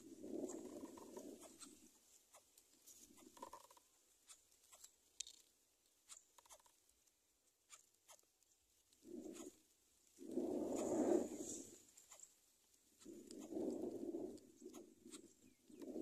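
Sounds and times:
bird soft low hoot: 0.0s - 1.7s, 10.2s - 11.8s
rustles of nest straw: 0.0s - 5.1s, 8.6s - 16.0s.

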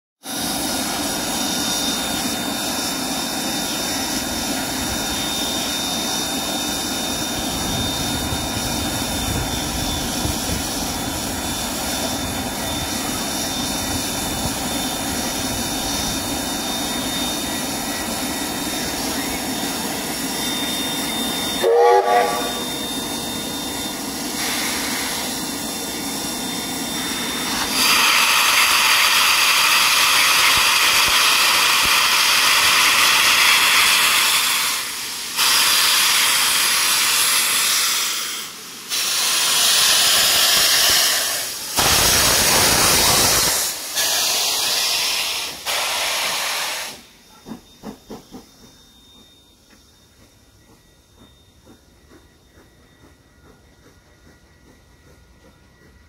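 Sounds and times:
steam hissing: 0.2s - 56.0s
steam locomotive whistle: 15.6s - 49.8s.

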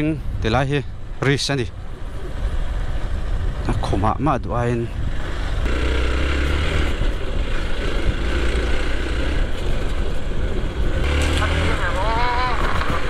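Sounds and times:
motorcycle engine running: 5.1s - 13.0s.

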